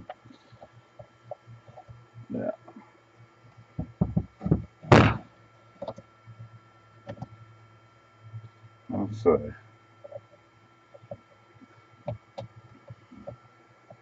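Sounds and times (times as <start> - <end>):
knocks on a wooden workbench: 3.8 - 5.2
loud thunk: 3.8 - 5.2.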